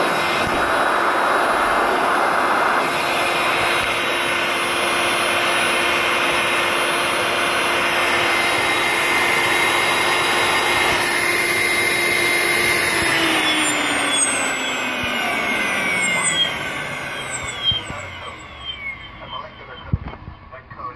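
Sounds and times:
rush of air: 0.0s - 4.2s
turbo compressor whine: 0.0s - 20.9s.

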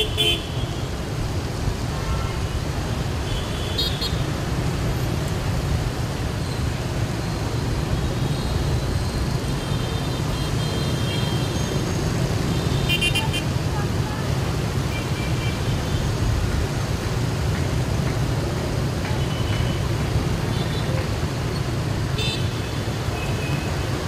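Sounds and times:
city road traffic rumble: 0.0s - 24.0s.

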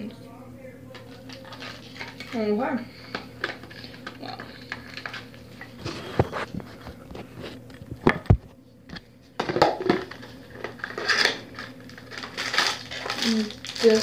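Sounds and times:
packaging rustling and crinkling: 0.9s - 2.4s, 3.0s - 8.1s, 9.7s - 14.0s.

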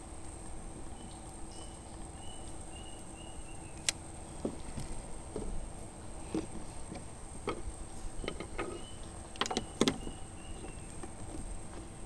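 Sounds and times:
wind and water rumble: 0.0s - 12.0s
knocks and clicks on wooden boat: 9.4s - 11.9s.

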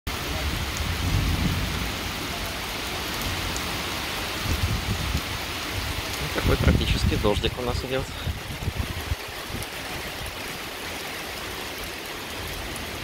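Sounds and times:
heavy rain pouring: 0.1s - 13.0s.

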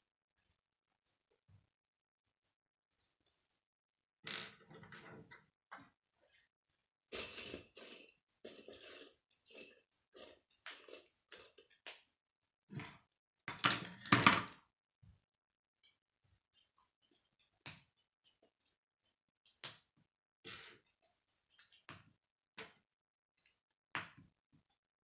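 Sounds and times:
plastic toy pieces rattling: 7.2s - 11.6s.

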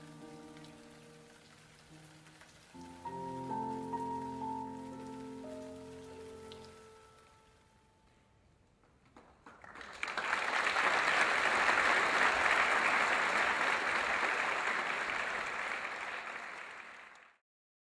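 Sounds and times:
audience applauding: 8.8s - 17.4s.

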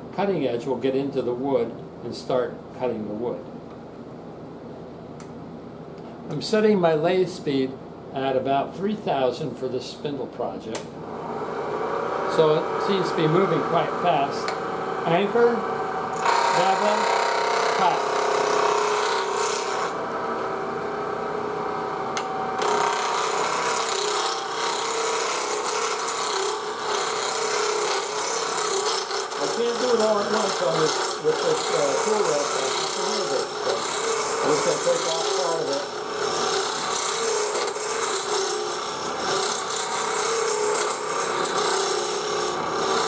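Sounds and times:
click: 10.7s - 10.9s
lathe humming: 11.0s - 43.0s
gouge rasping on spinning wood: 16.3s - 20.0s, 22.7s - 43.0s.

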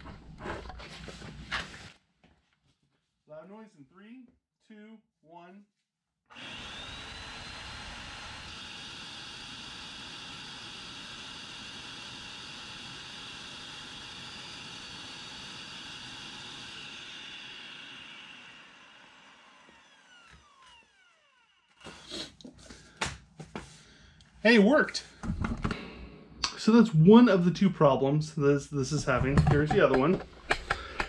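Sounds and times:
carpet cleaner motor whining: 6.3s - 22.7s.

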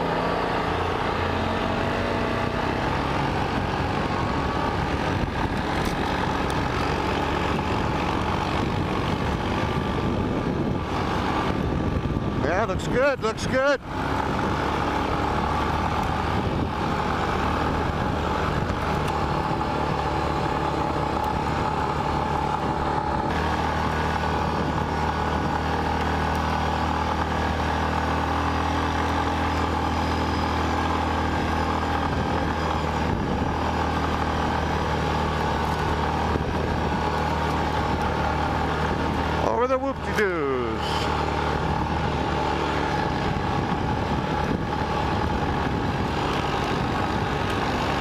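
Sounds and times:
atv engine running: 0.0s - 48.0s
wind on microphone: 7.5s - 12.5s, 16.2s - 17.0s, 42.9s - 47.4s.

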